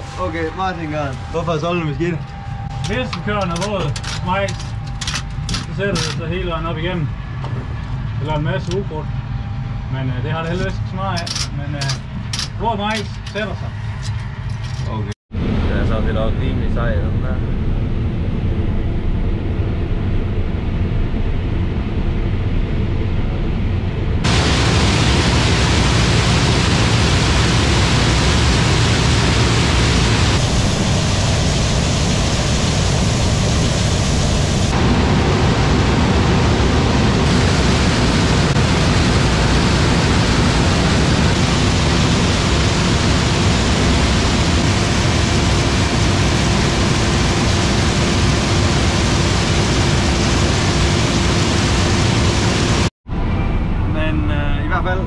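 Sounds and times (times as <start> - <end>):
combine harvester running: 24.3 - 52.9.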